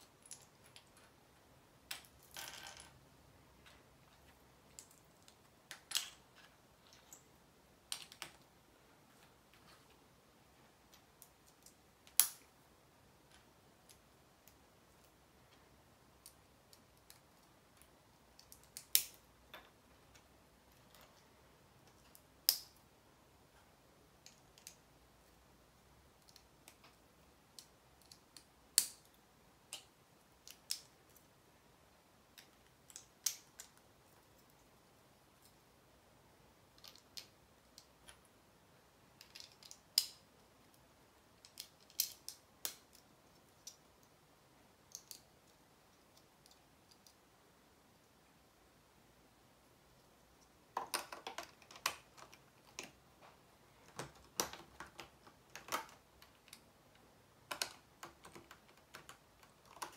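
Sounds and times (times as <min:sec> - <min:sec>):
plastic pieces clicking together: 0:07.9 - 0:08.4, 0:16.2 - 0:19.7, 0:39.2 - 0:40.2, 0:41.4 - 0:44.1, 0:50.8 - 0:53.0, 0:53.8 - 0:56.6, 0:57.4 - 0:59.9.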